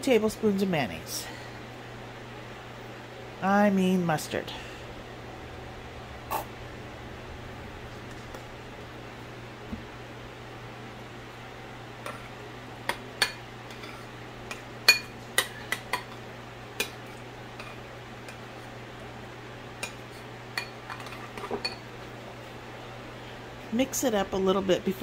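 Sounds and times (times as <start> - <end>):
kitchen fan humming: 0.0 - 25.0.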